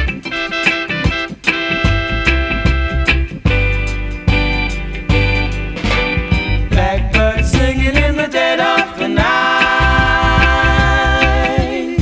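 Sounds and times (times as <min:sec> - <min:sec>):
reggae song from vinyl: 0:00.0 - 0:12.0
person singing: 0:06.7 - 0:12.0.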